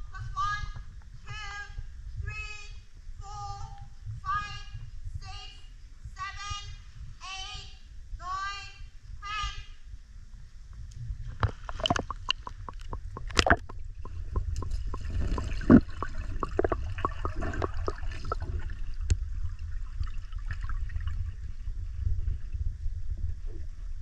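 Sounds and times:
steady low rumble: 0.0 - 24.0
sharp clicks and knocks: 11.4 - 17.7
water splashing and gurgling: 11.4 - 22.5.

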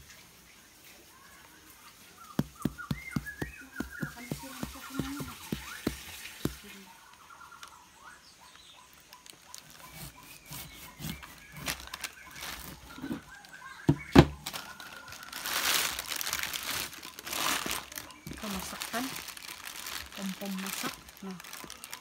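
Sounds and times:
knocks on fruit: 2.4 - 6.6, 13.9 - 14.4
plastic crinkling: 2.4 - 6.8, 8.9 - 22.0.

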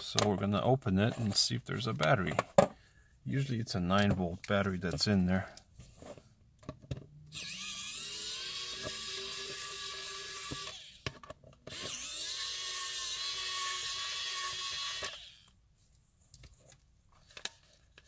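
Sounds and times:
electric screwdriver whining: 7.3 - 15.5.

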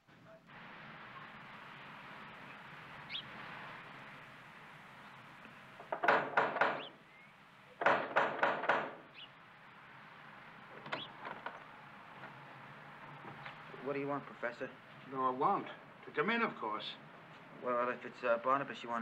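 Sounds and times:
knocking on wooden door: 5.8 - 7.0, 7.8 - 9.0.

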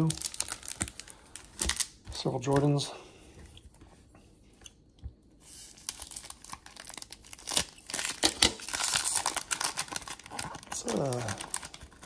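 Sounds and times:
wax paper wrapper tearing and crinkling: 0.0 - 2.0, 5.4 - 12.0.

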